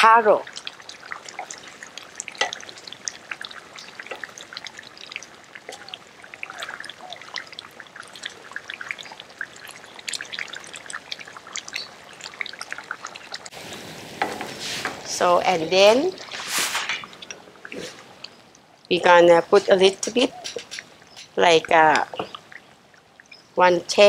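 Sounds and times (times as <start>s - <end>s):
curry bubbling and popping: 0.0s - 24.0s
wooden spatula stirring: 0.5s - 11.8s, 14.1s - 18.4s.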